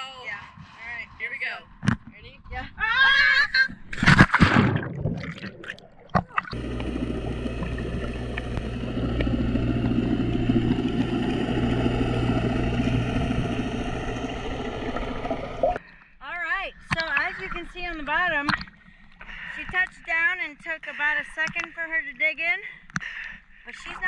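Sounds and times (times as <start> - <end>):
loud splash into water: 4.0 - 6.6
low hum: 4.2 - 15.8
muffled underwater rumble and hiss: 6.5 - 15.8.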